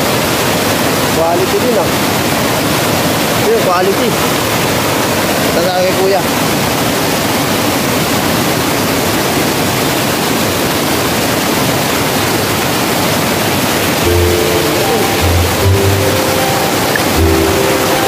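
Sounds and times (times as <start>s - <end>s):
waterfall roar: 0.0s - 18.0s
background music with bass line: 14.0s - 16.3s, 16.9s - 18.0s.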